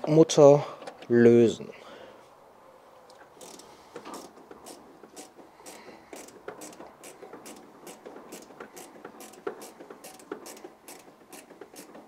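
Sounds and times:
wrench clicking on nut: 0:03.4 - 0:12.0.

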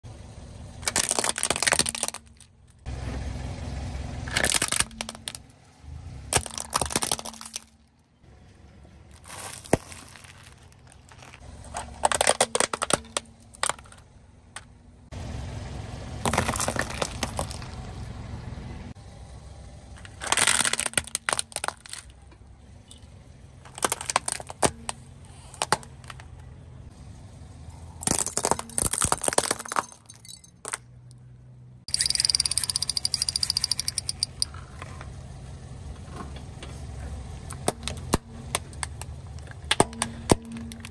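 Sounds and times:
plastic toys cracking under tyre: 0:00.8 - 0:02.5, 0:04.3 - 0:05.5, 0:06.3 - 0:08.0, 0:09.1 - 0:14.0, 0:16.2 - 0:17.8, 0:20.0 - 0:22.3, 0:23.6 - 0:26.5, 0:28.0 - 0:30.8, 0:37.5 - 0:40.9.

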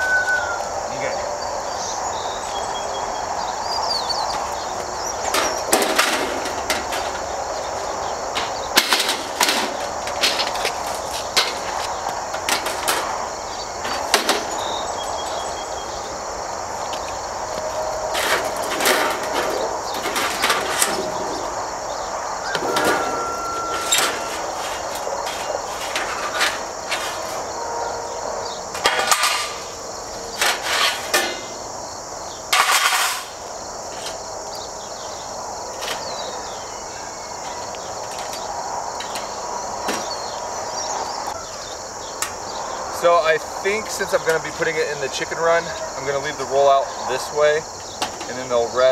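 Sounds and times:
insects chorus: 0:00.0 - 0:48.9
sheet metal panels clanking: 0:04.3 - 0:15.6, 0:18.0 - 0:21.7, 0:22.4 - 0:27.6, 0:28.7 - 0:31.7, 0:32.5 - 0:34.2.

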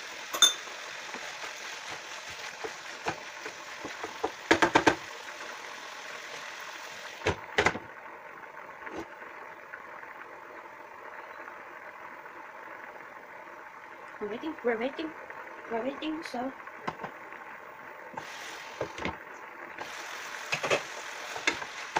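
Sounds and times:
food sizzling in a frying pan: 0:00.0 - 0:21.9
wooden spatula tapping a pan: 0:02.6 - 0:05.0.

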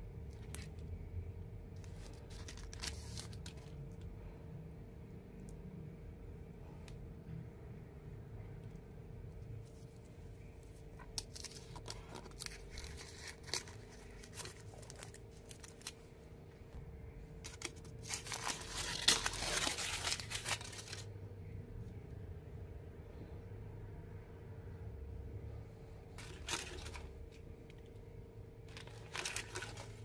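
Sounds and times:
foil wrapper crinkling and tearing: 0:01.8 - 0:03.7, 0:11.0 - 0:16.0, 0:17.4 - 0:21.1, 0:26.2 - 0:27.1, 0:28.7 - 0:30.0.

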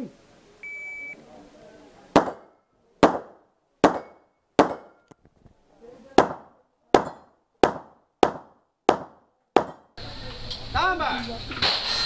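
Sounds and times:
pistol shots: 0:02.1 - 0:05.1, 0:06.2 - 0:10.0.

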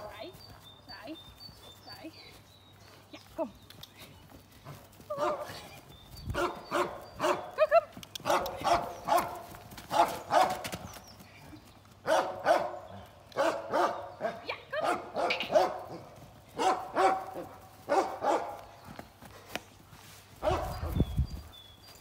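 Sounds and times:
dog barking: 0:05.2 - 0:05.5, 0:06.4 - 0:07.5, 0:08.2 - 0:10.6, 0:12.0 - 0:18.6, 0:20.4 - 0:20.9.

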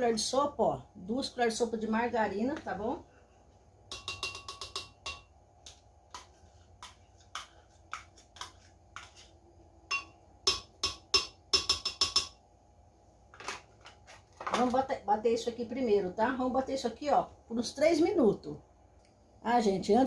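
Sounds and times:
spoon tapping on blender jar: 0:03.9 - 0:09.1, 0:09.9 - 0:12.4.

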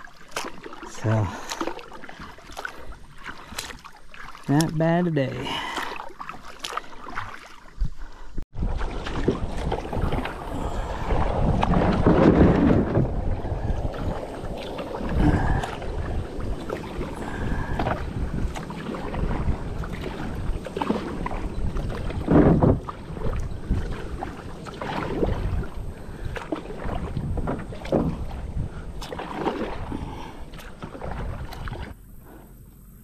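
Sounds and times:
paddle splashing in water: 0:00.0 - 0:32.5
low rumble: 0:08.2 - 0:24.2.

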